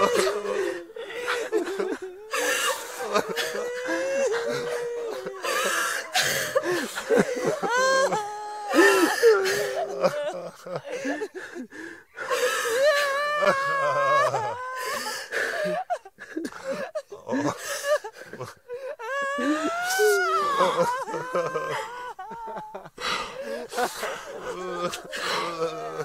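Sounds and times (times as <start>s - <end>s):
gasping wheezy breaths: 0.0s - 10.1s, 10.8s - 13.1s, 22.9s - 26.0s
people sobbing and wailing: 0.0s - 26.0s.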